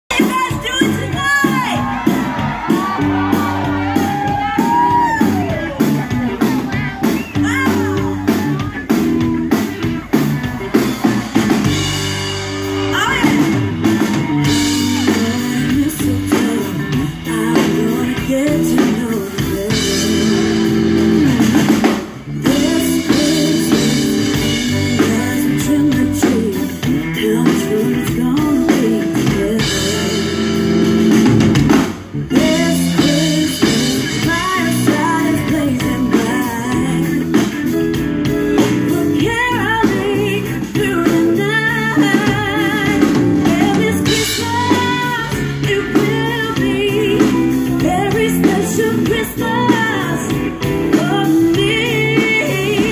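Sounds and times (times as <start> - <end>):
drum kit: 0.1 - 52.9
guitar: 0.1 - 52.9
woman singing: 7.3 - 8.9, 12.9 - 21.1, 22.4 - 31.0, 32.3 - 52.9.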